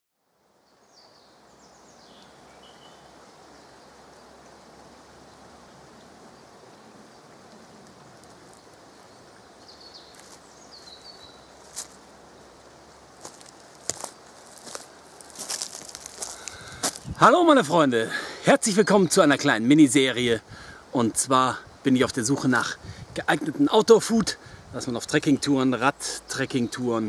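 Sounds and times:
forest rustling hiss: 0.2s - 27.0s
small bird chirping: 8.2s - 11.9s.

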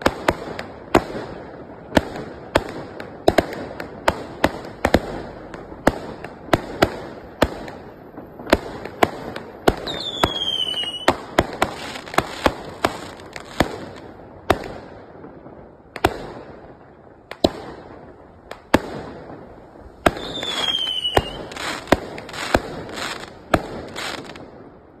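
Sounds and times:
firework bangs: 0.0s - 25.0s
firework crackling: 0.0s - 25.0s
falling firework whistle: 9.8s - 11.2s, 20.1s - 21.9s.

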